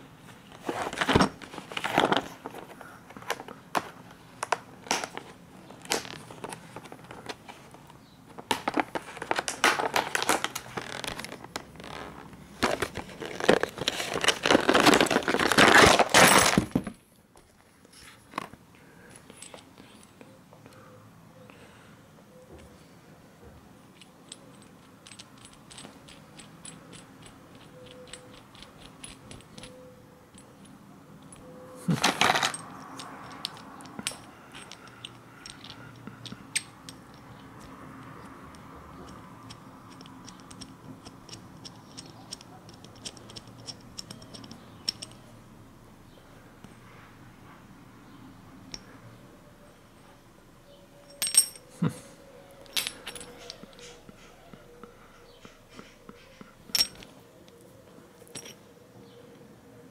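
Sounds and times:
metal tool parts clinking: 23.9s - 45.3s, 51.0s - 51.7s, 52.6s - 54.3s, 55.3s - 57.1s, 58.2s - 58.6s.

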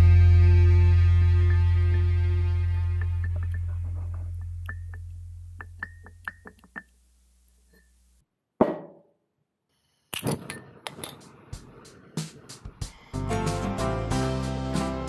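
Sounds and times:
background music: 0.0s - 4.9s, 11.8s - 15.0s
sharp knock: 8.6s - 9.0s.

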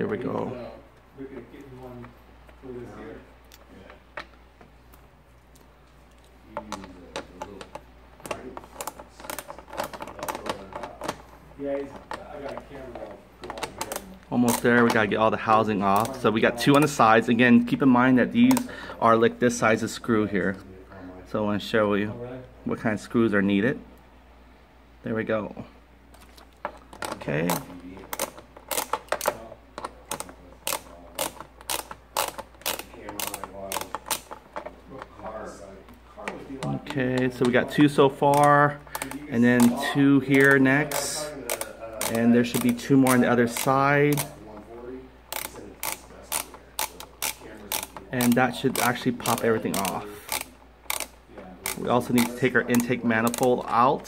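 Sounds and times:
faint creaking: 5.7s - 21.2s, 25.6s - 54.0s
socket wrench clicking: 26.7s - 34.7s, 38.2s - 44.4s, 45.3s - 53.7s.

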